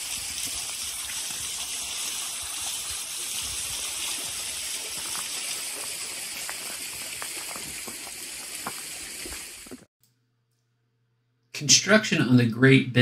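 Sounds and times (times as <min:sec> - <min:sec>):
water trickling and dripping: 0:00.0 - 0:09.9.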